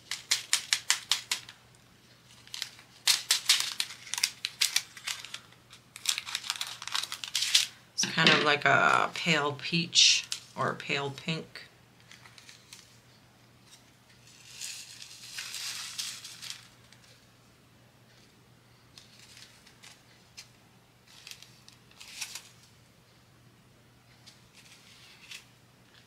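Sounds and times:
plastic bags crinkling: 2.3 - 7.7, 14.3 - 17.0.

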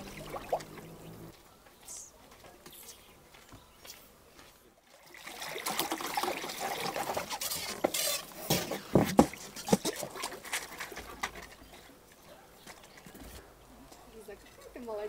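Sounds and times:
pool water splashing and lapping: 0.0 - 1.3, 4.8 - 12.3.

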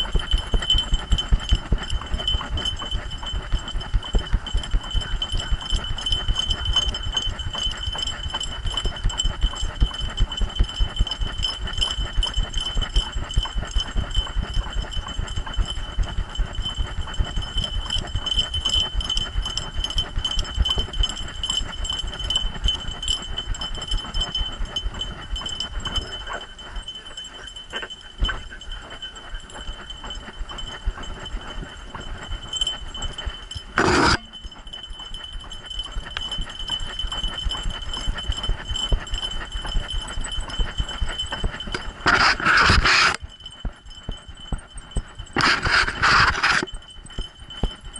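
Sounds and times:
dog's running strides thudding: 0.0 - 44.2
steady high-pitched whine: 0.0 - 47.9.

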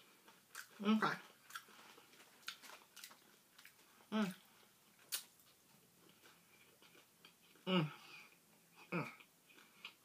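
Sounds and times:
chewing and mouth clicks: 0.2 - 7.7.

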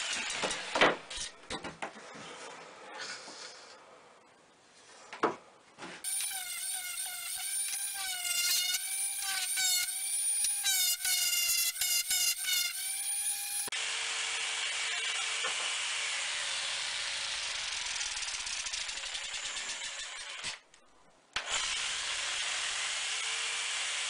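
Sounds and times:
tool working wood: 6.0 - 13.7
power tool motor whine: 6.1 - 18.3.

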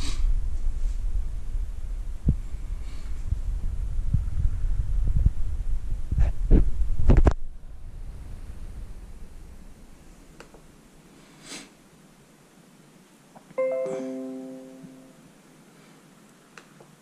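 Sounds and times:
notification chime chord: 13.6 - 15.2.

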